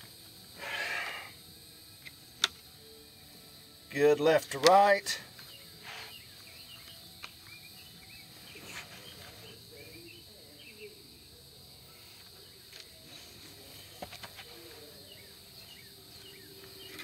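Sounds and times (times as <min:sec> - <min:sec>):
insect drone: 0:00.0 - 0:17.0
birds chirping: 0:05.4 - 0:11.1, 0:15.0 - 0:17.0.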